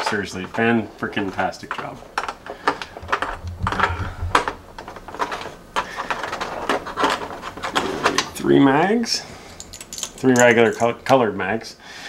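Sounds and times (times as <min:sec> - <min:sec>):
plastic pieces clicking: 0:02.2 - 0:07.8.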